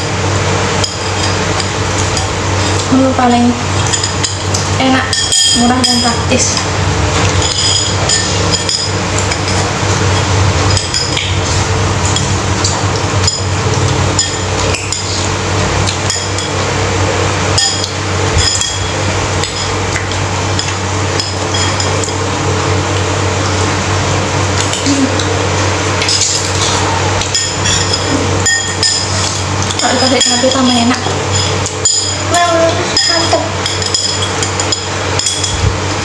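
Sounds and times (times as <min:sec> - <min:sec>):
steady low hum: 0:00.0 - 0:36.0
cutlery clinking on ceramic bowl: 0:03.8 - 0:11.4, 0:17.6 - 0:22.2, 0:26.0 - 0:35.6.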